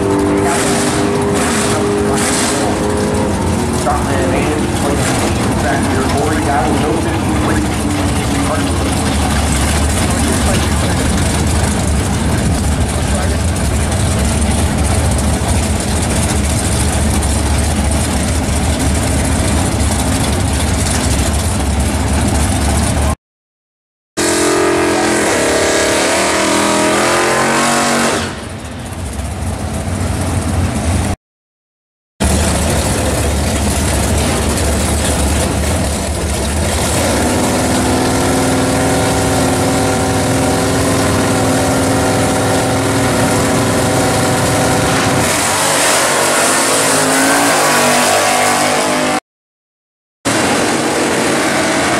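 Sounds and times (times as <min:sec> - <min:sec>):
engine idling and revving: 0:00.0 - 0:23.2, 0:24.2 - 0:31.2, 0:32.2 - 0:49.2, 0:50.3 - 0:51.9
engines at fast idle: 0:03.6 - 0:23.2, 0:32.2 - 0:39.6.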